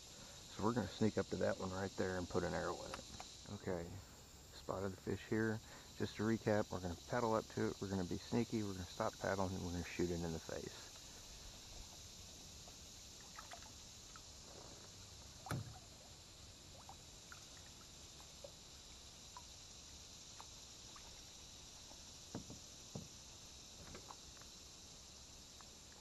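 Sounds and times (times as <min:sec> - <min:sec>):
faint high insect hiss: 0:00.0 - 0:26.0
small ticks: 0:02.7 - 0:04.2, 0:10.5 - 0:26.0
light knocks against kayak hull: 0:22.3 - 0:23.2.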